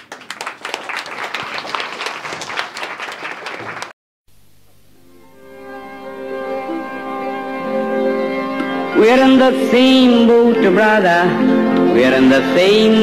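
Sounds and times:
audience applauding: 0:00.0 - 0:04.0.

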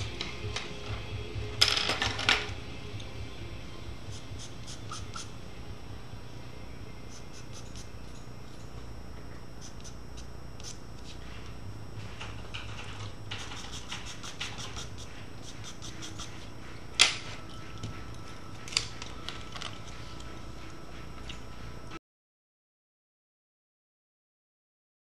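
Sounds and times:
steady low hum: 0:00.0 - 0:22.0
pencil scratching on paper: 0:04.1 - 0:05.3, 0:07.1 - 0:08.0, 0:09.6 - 0:11.3, 0:13.4 - 0:16.6.

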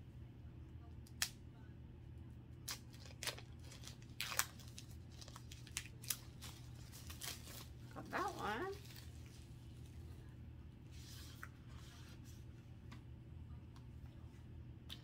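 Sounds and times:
steady low hum: 0:00.0 - 0:15.0
packaging crinkles and clicks: 0:02.7 - 0:07.7.

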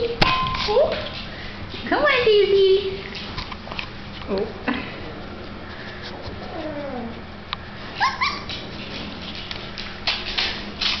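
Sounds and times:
puppy whining: 0:04.8 - 0:08.7
puppy yipping: 0:08.0 - 0:08.6.

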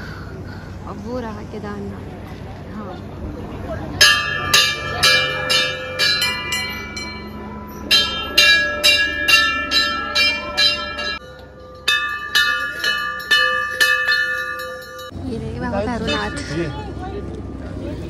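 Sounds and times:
temple bells ringing: 0:04.0 - 0:17.4.

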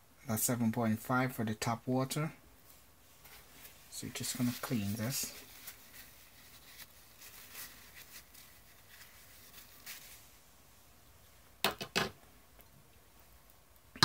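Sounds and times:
tissue rustling: 0:02.6 - 0:11.0
sharp knocks or clicks: 0:11.6 - 0:12.2.

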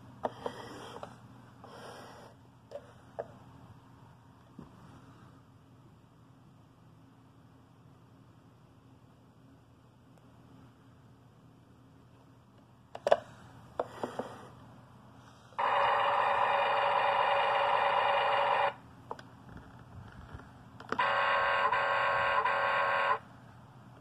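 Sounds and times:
toy speaker electronic sounds: 0:21.0 - 0:23.2.

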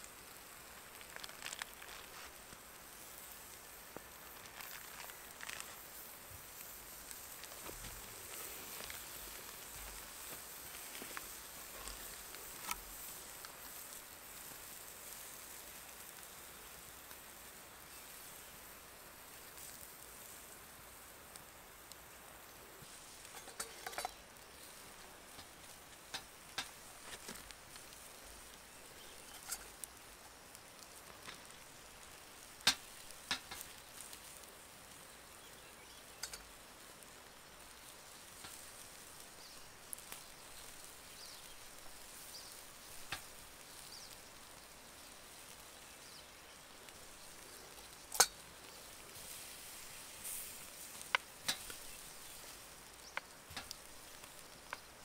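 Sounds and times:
faint campfire sizzling: 0:00.0 - 0:55.0
fire popping and crackling: 0:00.0 - 0:55.0.

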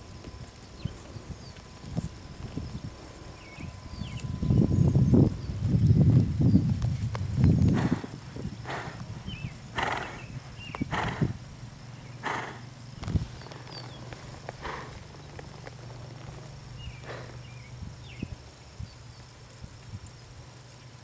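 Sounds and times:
horse hoofbeats in sand: 0:00.0 - 0:19.2
small birds chirping: 0:00.3 - 0:20.8
horse breathing puffs: 0:07.5 - 0:11.4, 0:12.2 - 0:17.7.

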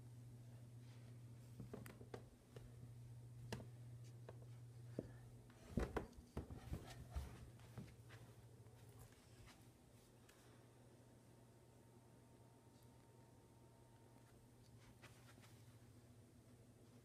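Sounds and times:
steady low hum: 0:00.0 - 0:17.0
footfalls on carpeted stairs: 0:03.5 - 0:09.6.

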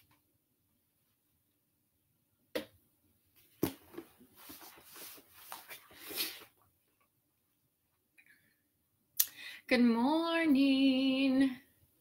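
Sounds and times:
rustling and shuffling: 0:03.3 - 0:07.1.

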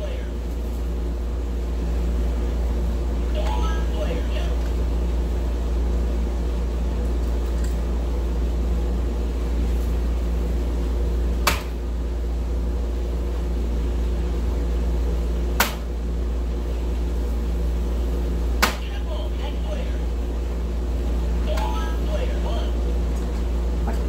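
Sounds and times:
low hum: 0:00.0 - 0:24.0
darts striking electronic dartboard: 0:11.4 - 0:11.8, 0:15.5 - 0:15.9, 0:18.6 - 0:18.9.

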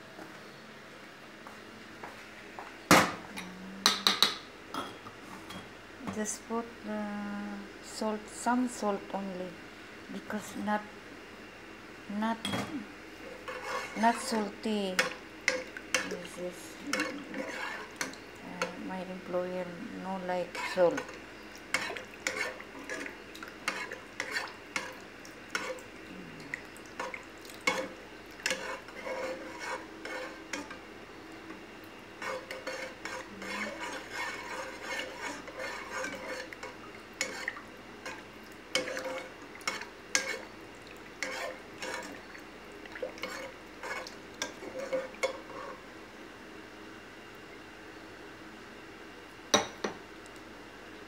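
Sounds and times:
metal spoon stirring in saucepan: 0:13.2 - 0:19.3, 0:20.2 - 0:30.8, 0:32.2 - 0:45.8.

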